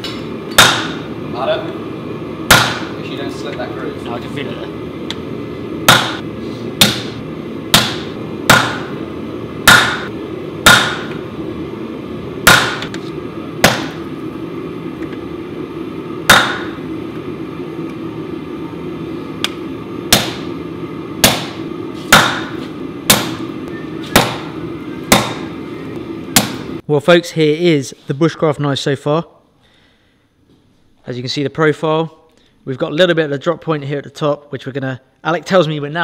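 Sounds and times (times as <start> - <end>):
hammer ringing on hot metal: 2.5 - 3.0, 5.9 - 6.2, 6.8 - 9.0, 9.7 - 11.2, 16.3 - 16.8, 21.2 - 23.4.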